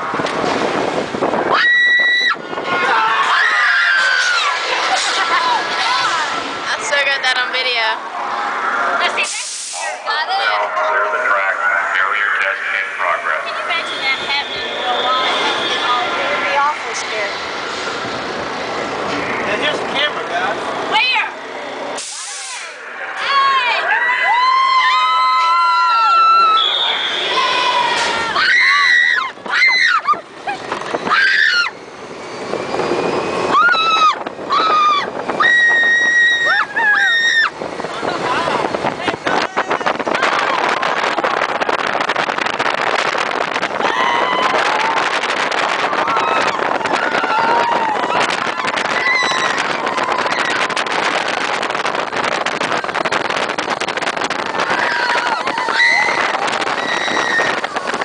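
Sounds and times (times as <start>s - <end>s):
wind rushing on microphone: 0.0s - 9.3s, 23.4s - 58.0s
passengers screaming: 1.3s - 6.7s, 22.1s - 42.6s, 43.4s - 58.0s.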